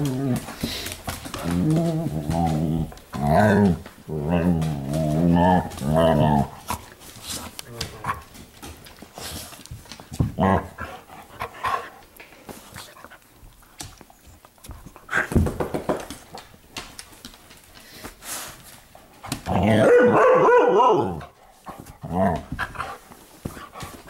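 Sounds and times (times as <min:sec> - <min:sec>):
dogs growling and barking: 0:00.0 - 0:09.2, 0:09.9 - 0:12.1, 0:19.2 - 0:23.1.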